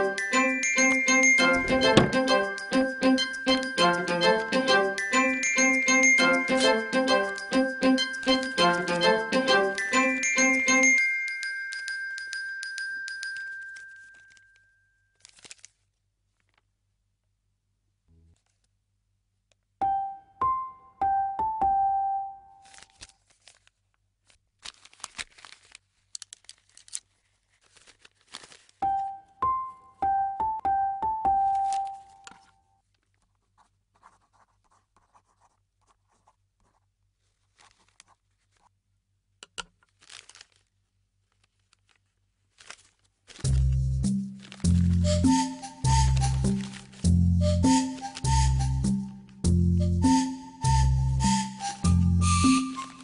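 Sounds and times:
chime music: 0.0s - 13.9s
paper crinkling: 13.3s - 16.8s, 22.6s - 29.0s, 31.4s - 38.8s, 39.7s - 49.4s, 52.6s - 53.0s
marker scratching on paper: 33.5s - 36.9s.

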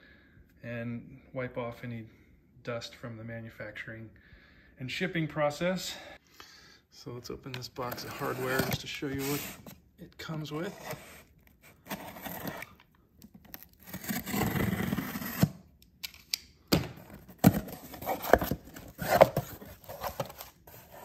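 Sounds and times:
knife slitting packing tape: 13.5s - 16.4s.

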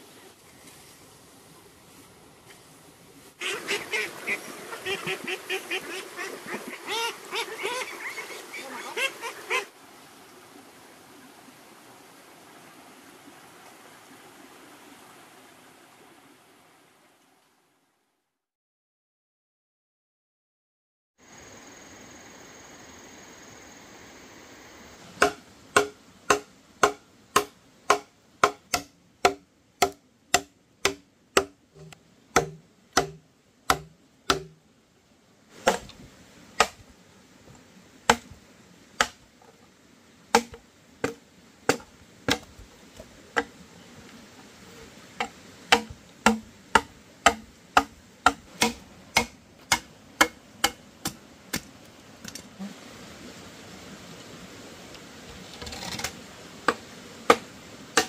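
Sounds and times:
hand tool chopping wood: 25.2s - 34.6s, 35.6s - 35.9s, 36.6s - 36.8s, 38.1s - 38.3s, 40.3s - 42.5s, 45.2s - 51.7s.

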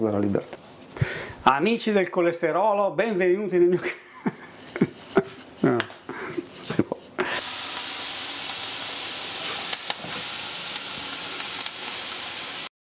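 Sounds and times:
steady hiss: 3.8s - 12.7s.

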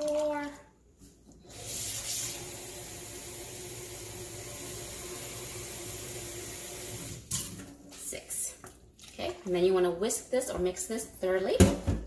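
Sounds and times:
faucet water filling a cup: 1.5s - 7.3s.

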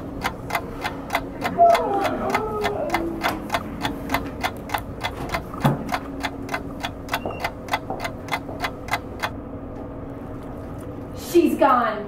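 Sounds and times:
clock-like ticking: 0.0s - 9.4s
faint steady hum: 0.0s - 12.0s.

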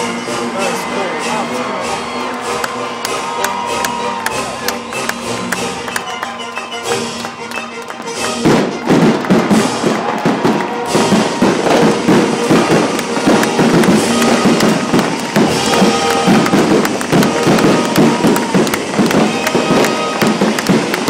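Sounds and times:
symphony orchestra playing: 0.0s - 21.0s
fireworks bangs and crackling: 7.8s - 21.0s.

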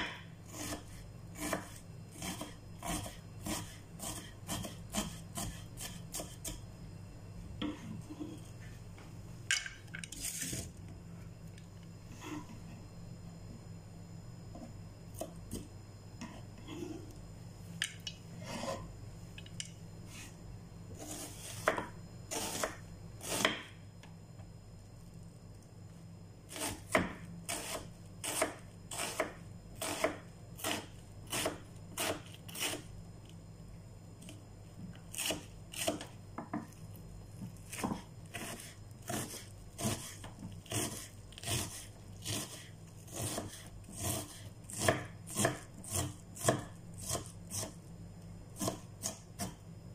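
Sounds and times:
knife chopping onion on wooden board: 0.0s - 6.6s, 21.0s - 23.8s, 26.5s - 32.9s, 35.1s - 36.7s, 37.4s - 47.8s, 48.6s - 49.6s.

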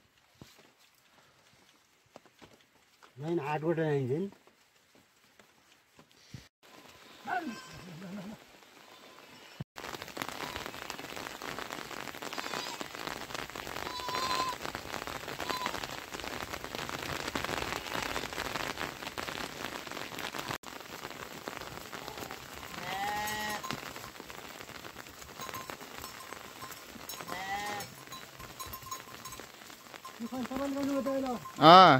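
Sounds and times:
rain falling on vegetation: 0.0s - 31.9s
goat or sheep bleating: 6.9s - 9.6s, 13.8s - 14.6s, 22.0s - 23.7s, 27.1s - 28.0s.

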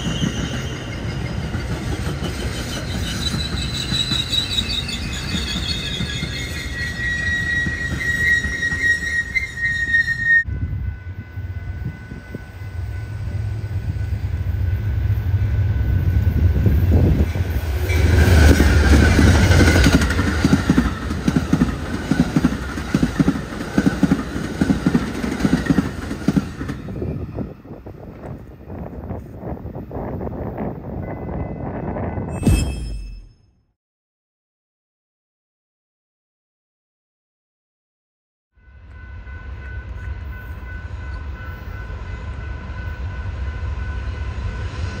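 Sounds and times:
wheels clickety-clack on rail joints: 0.0s - 9.7s, 16.4s - 31.6s
train wheels squealing: 0.0s - 21.0s, 26.4s - 27.9s, 31.0s - 33.5s.

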